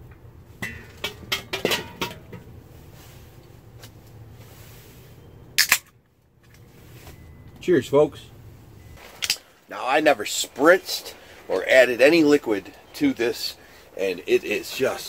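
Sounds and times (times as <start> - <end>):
metal grill lid knocks: 0.6 - 2.4
beer can popping open: 5.6 - 5.9.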